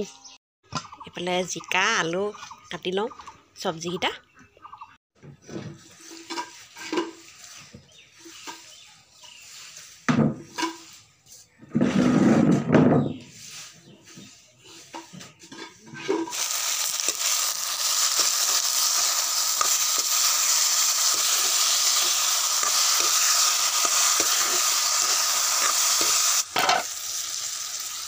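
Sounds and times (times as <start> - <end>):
metal ladle stirring in wok: 15.5 - 26.4
vegetables sizzling in hot oil: 16.2 - 28.0.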